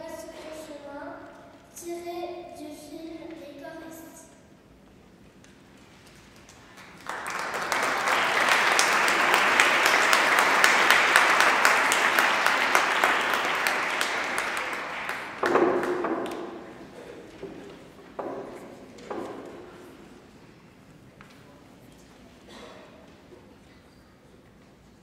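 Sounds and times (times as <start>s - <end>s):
audience applauding: 6.3s - 17.1s.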